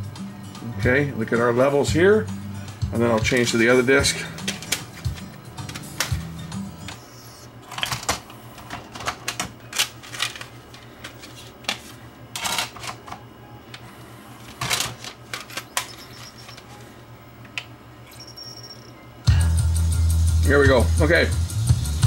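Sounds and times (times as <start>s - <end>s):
steady low hum: 0.0s - 22.0s
cd clicks and clatters: 4.3s - 7.1s, 7.7s - 13.9s, 14.5s - 16.7s.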